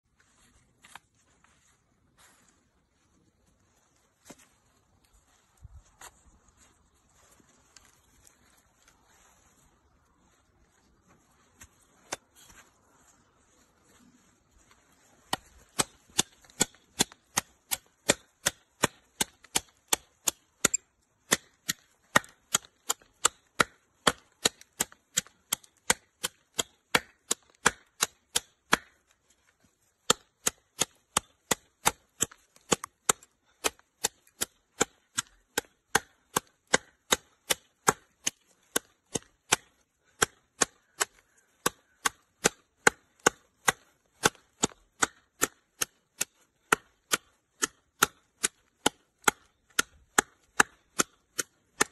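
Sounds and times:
knife chopping into branch: 15.3s - 29.1s, 30.0s - 51.9s.

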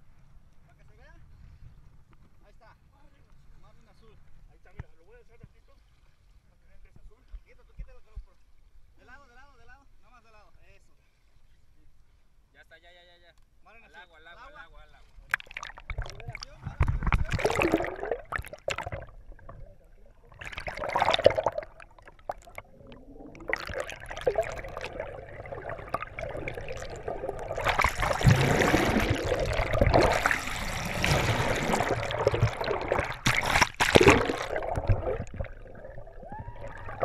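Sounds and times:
water sloshing and gurgling: 15.0s - 37.0s.

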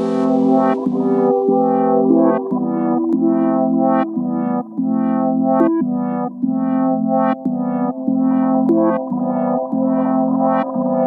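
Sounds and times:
synthesizer chords: 0.0s - 5.6s.

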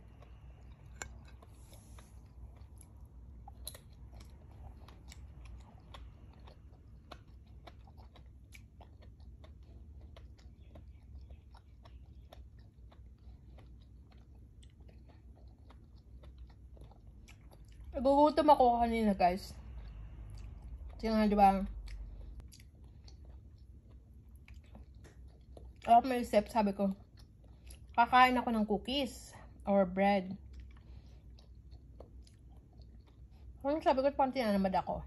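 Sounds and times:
person chewing wetly: 0.0s - 18.0s, 19.6s - 21.0s, 21.7s - 25.9s, 26.9s - 28.0s, 30.4s - 33.6s.

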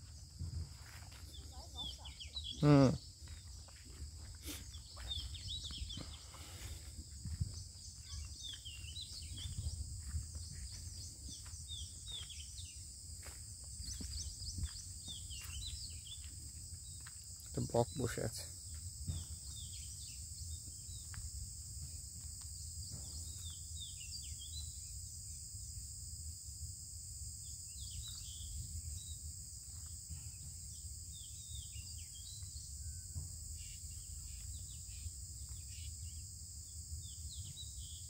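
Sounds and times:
insects chirring: 0.0s - 38.0s
bird chirps: 1.3s - 3.7s, 4.4s - 6.7s, 7.5s - 12.8s.

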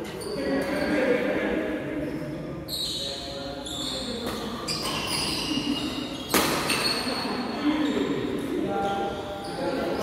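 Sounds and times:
shoes squeaking on court floor: 0.0s - 1.0s, 2.0s - 10.0s
sharp shuttlecock hit: 6.3s - 6.9s.

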